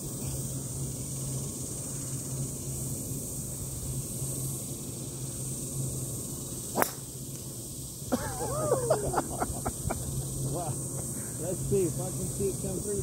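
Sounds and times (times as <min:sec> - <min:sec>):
background hiss and low hum: 0:00.0 - 0:13.0
golf club striking ball: 0:06.7 - 0:07.2.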